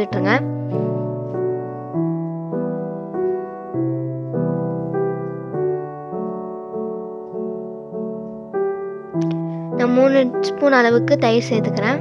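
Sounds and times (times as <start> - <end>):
gentle piano melody: 0.0 - 12.0.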